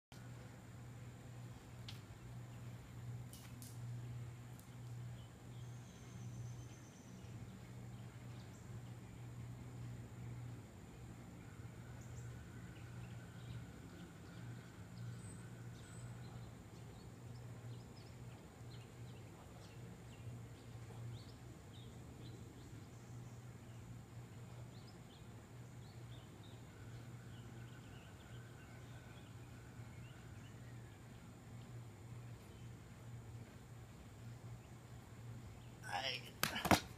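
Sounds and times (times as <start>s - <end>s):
steady low hum: 0.1s - 36.9s.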